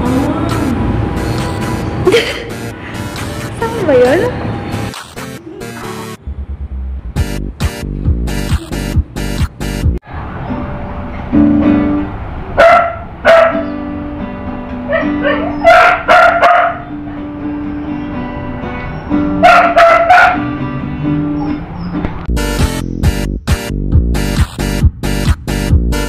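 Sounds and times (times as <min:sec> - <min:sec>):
electronic dance music: 0:02.6 - 0:06.2, 0:07.2 - 0:10.0, 0:22.3 - 0:26.0
acoustic guitar chords: 0:07.2 - 0:12.2, 0:13.4 - 0:21.4
loud bark-like cries: 0:12.6 - 0:13.9, 0:14.8 - 0:17.3, 0:18.6 - 0:22.0.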